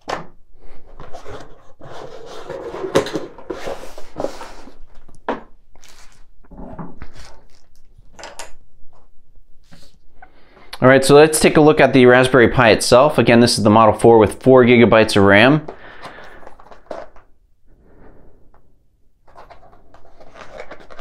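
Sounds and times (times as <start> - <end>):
cardboard scraping on wood: 0.9 - 4.8.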